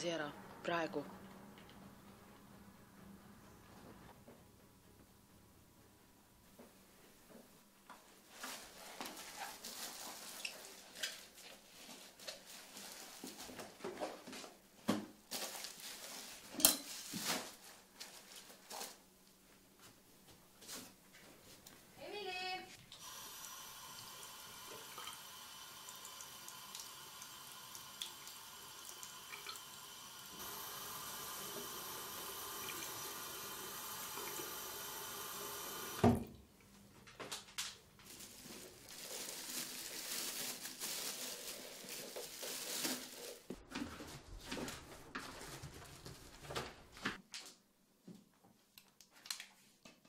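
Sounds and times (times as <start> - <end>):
tap water running into basin: 22.9 - 36.4.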